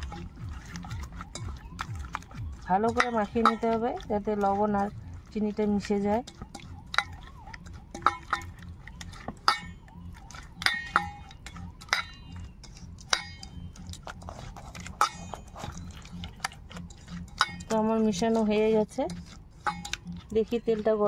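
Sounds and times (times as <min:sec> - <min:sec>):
hand squishing batter: 0:00.0 - 0:21.0
hand clinking against steel bowl: 0:07.9 - 0:08.6, 0:09.4 - 0:09.8, 0:10.6 - 0:12.4, 0:13.1 - 0:13.6, 0:14.9 - 0:16.2, 0:17.3 - 0:18.0.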